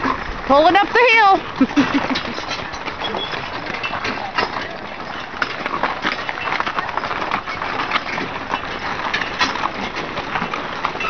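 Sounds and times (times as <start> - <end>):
wagon rattling: 0.0 - 11.0
chains clinking: 1.8 - 9.9.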